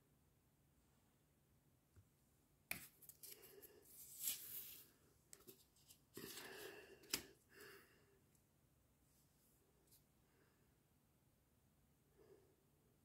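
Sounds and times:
paper card rustling and scraping: 2.7 - 7.2.

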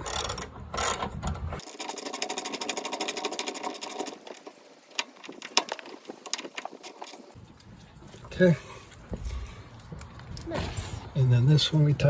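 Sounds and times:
ratchet wrench clicking: 0.0 - 1.4.

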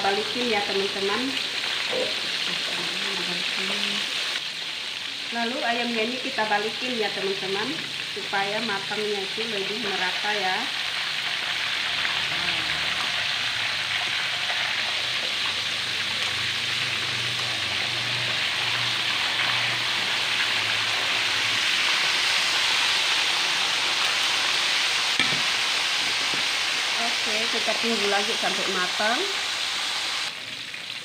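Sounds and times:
oil sizzling in a wok: 0.0 - 31.0
utensil knocking against wok: 25.2 - 25.5.

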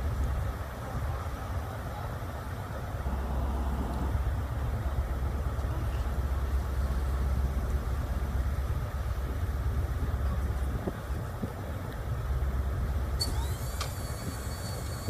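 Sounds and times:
diesel train rumbling: 0.0 - 15.0
faint high-pitched squeal: 13.2 - 15.0.

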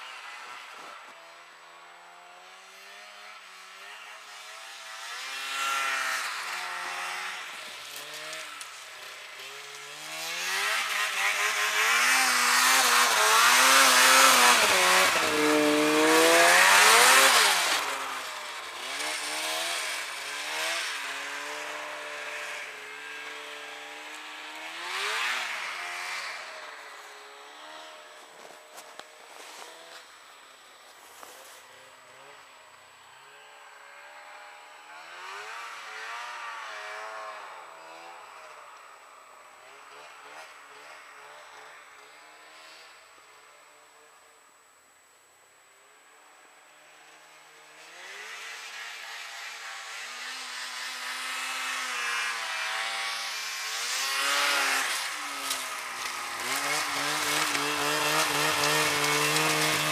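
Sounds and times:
snowmobile engine revving: 0.0 - 43.0, 46.9 - 59.9.

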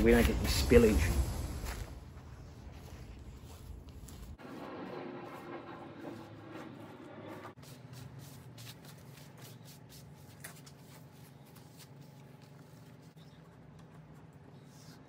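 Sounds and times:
hands scuffing masking tape: 6.1 - 13.2.

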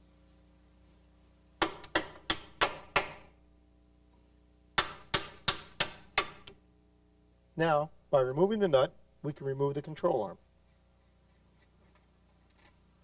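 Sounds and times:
hammer striking metal nut: 4.8 - 6.5.

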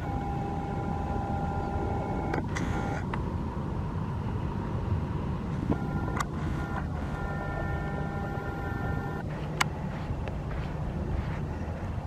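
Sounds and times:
faint high tones: 0.0 - 3.0, 5.7 - 9.3.

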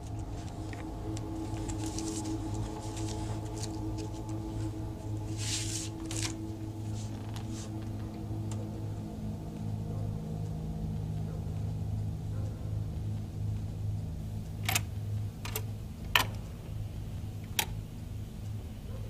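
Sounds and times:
steady low hum: 0.0 - 19.0
record player clicks: 14.5 - 16.5, 17.4 - 17.8.

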